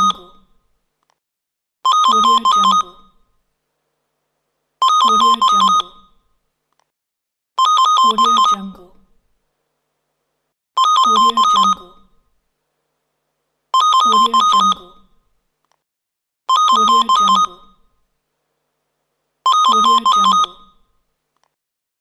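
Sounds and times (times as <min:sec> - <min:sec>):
telephone bell ringing: 0:01.9 - 0:03.1, 0:10.8 - 0:11.8, 0:13.8 - 0:14.8, 0:16.5 - 0:17.8, 0:19.5 - 0:20.9.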